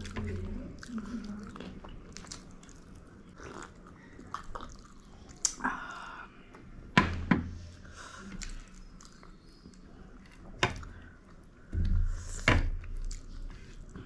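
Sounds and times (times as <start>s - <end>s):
chewing with wet mouth smacks: 0.0s - 5.6s, 8.2s - 11.5s.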